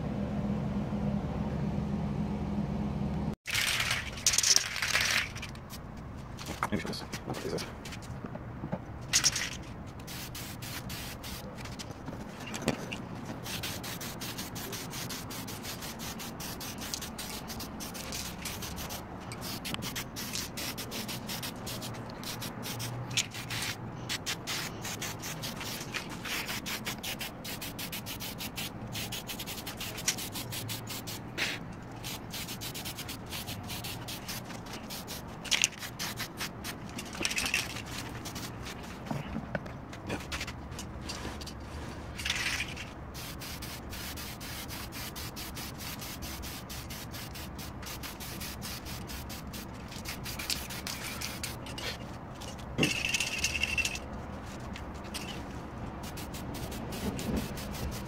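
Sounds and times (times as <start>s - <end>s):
rough rubbing noise: 9.2s - 39.0s
aerosol can spraying: 10.0s - 11.4s, 13.4s - 36.8s, 43.2s - 51.6s, 56.0s - 58.0s.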